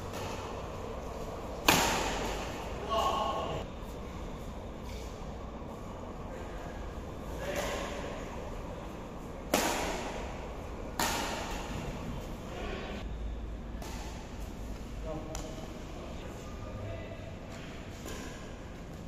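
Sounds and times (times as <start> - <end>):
badminton rackets hitting shuttlecock: 1.5 - 3.6, 9.4 - 12.1, 13.8 - 14.5.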